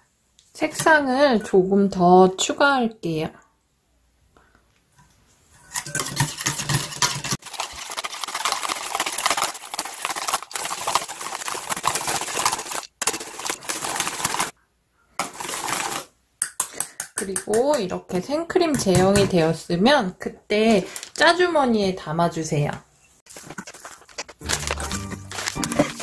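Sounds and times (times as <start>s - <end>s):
wire whisk beating in metal bowl: 5.6s - 14.5s.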